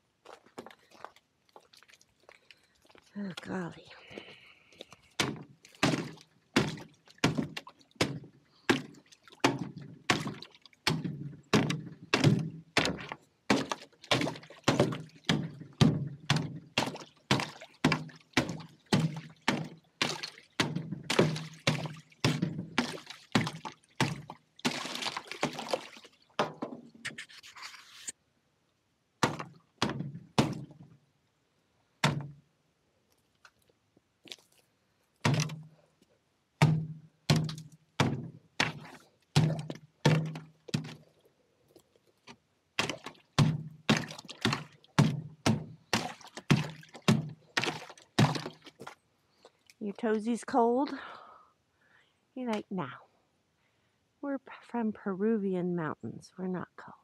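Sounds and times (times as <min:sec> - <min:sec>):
dull thuds: 0:05.2 - 0:26.9, 0:29.2 - 0:30.9, 0:32.0 - 0:32.4, 0:35.2 - 0:35.8, 0:36.6 - 0:41.1, 0:42.8 - 0:49.0.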